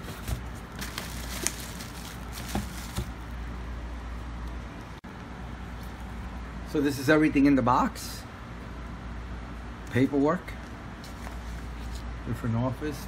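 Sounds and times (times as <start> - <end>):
rustling: 0.0 - 3.3.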